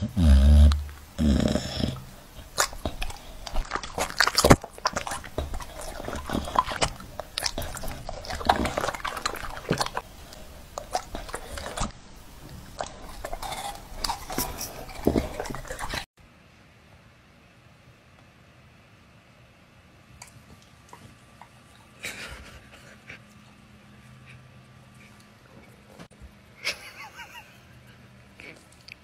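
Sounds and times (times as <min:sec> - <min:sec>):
dog chewing and lip-smacking: 0:00.7 - 0:16.1.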